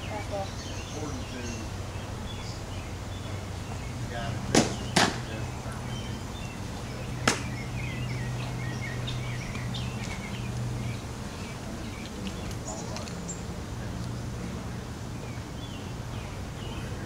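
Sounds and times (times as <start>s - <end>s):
steady low hum: 0.0s - 17.0s
softball smacking into glove: 4.5s - 5.2s, 7.2s - 7.6s.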